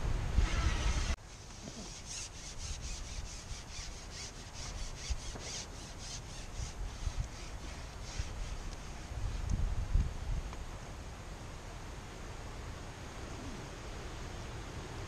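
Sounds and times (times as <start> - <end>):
fishing pole rubbing and sliding: 0.4 - 9.5.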